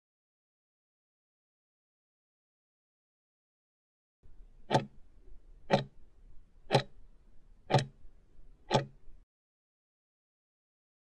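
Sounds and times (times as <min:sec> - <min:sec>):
sharp clock-like ticks: 0:04.6 - 0:05.0, 0:05.6 - 0:06.0, 0:06.7 - 0:07.0, 0:07.7 - 0:08.0, 0:08.6 - 0:09.0.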